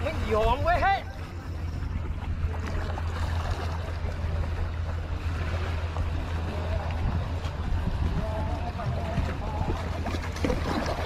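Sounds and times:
wind rumble on microphone: 0.0 - 11.0
small waves washing around rocks: 2.4 - 11.0.

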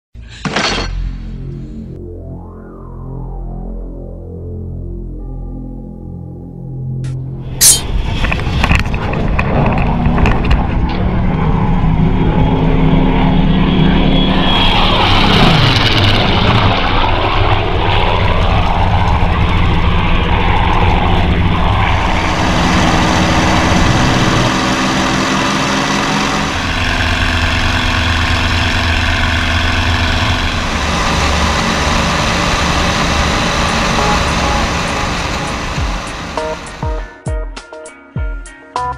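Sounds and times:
propeller aircraft engines roaring: 7.6 - 37.1.

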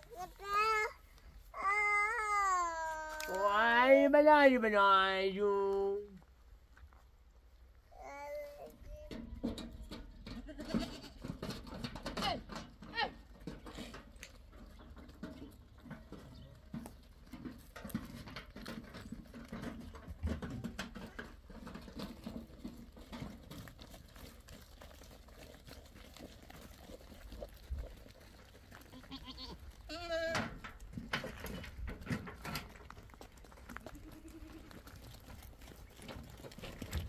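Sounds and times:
hooves on stony gravel: 9.5 - 37.0
goat bleating: 10.4 - 11.3, 28.8 - 30.5, 33.8 - 34.8.

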